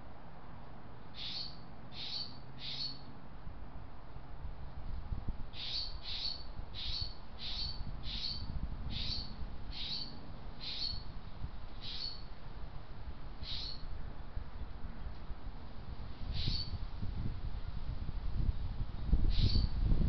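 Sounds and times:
small bird chirping: 1.2 - 3.1, 5.6 - 11.0, 11.8 - 12.3, 13.4 - 13.8, 16.3 - 16.8, 19.2 - 19.8.

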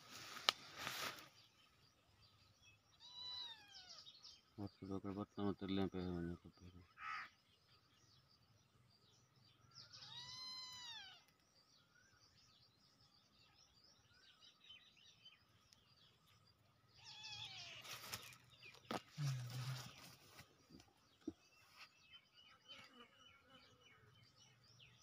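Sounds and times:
faint bird chirping: 0.0 - 25.0
kitten meowing faintly: 3.0 - 4.0, 10.0 - 11.3, 17.0 - 18.0.

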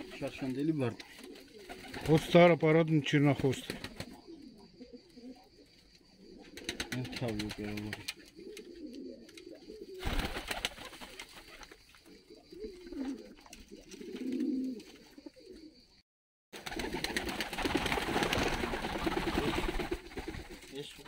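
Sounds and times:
wings rustling: 0.0 - 2.5, 3.2 - 15.2, 16.6 - 21.0
pigeons cooing: 0.0 - 16.0.

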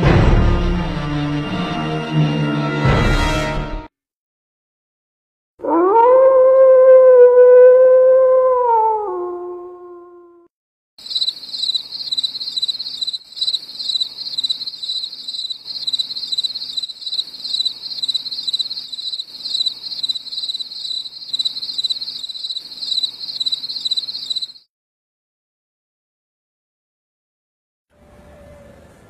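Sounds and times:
crickets chirping: 11.0 - 24.6.

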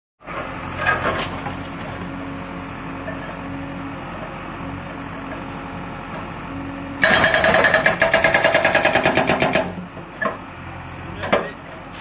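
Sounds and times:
diesel engine running: 0.2 - 12.0.

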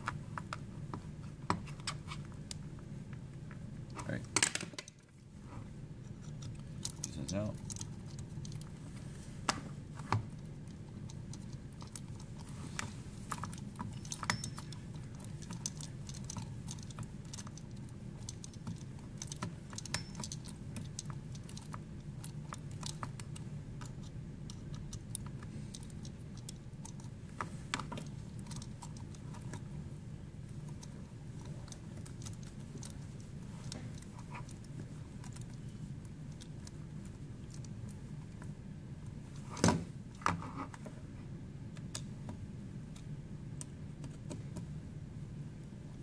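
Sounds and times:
steady low hum: 0.0 - 46.0.

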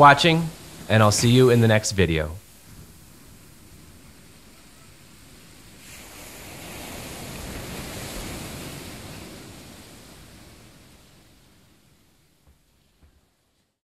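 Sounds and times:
sea waves washing onto beach: 0.0 - 13.4.

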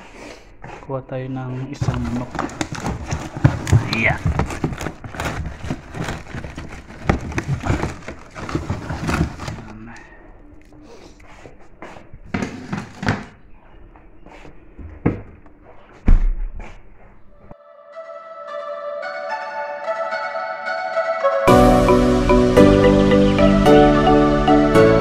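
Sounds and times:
cardboard and paper rustling: 1.7 - 10.0.

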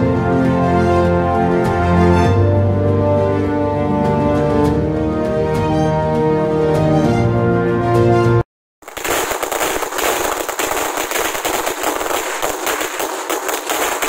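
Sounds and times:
background music: 0.0 - 8.4
ground firework crackling: 8.8 - 14.0.

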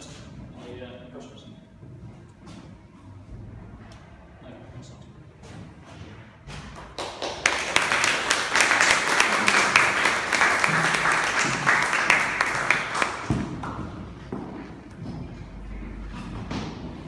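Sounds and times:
audience applauding: 6.9 - 13.8.

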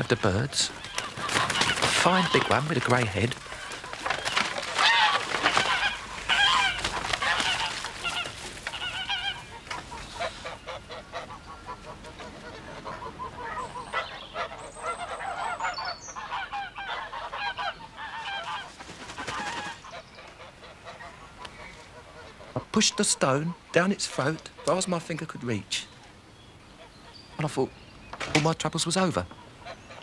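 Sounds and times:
geese honking: 0.0 - 26.0, 28.7 - 30.0
squeaky goose calls: 3.4 - 18.7.

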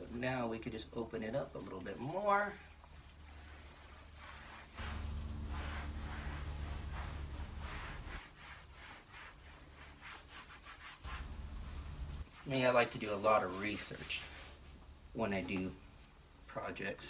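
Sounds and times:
soft wiping strokes on plastic: 0.0 - 16.6
low hum: 4.8 - 8.2, 11.1 - 12.2.

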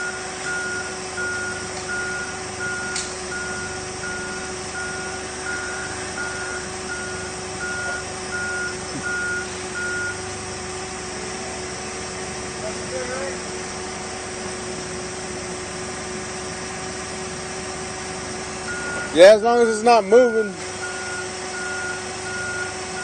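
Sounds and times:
reversing alarm beeping: 0.0 - 10.5, 18.6 - 23.0.

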